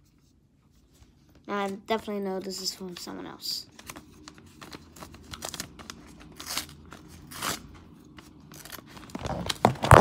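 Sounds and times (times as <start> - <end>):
paper tearing: 5.0 - 7.8
paper rustling and crackling: 8.2 - 10.0.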